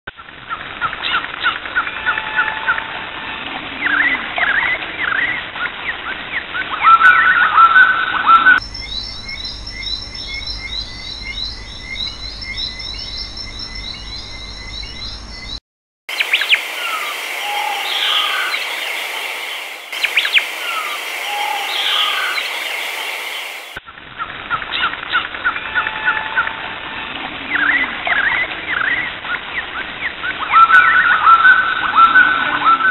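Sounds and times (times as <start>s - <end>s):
birds chirping and calling: 3.8s - 23.8s.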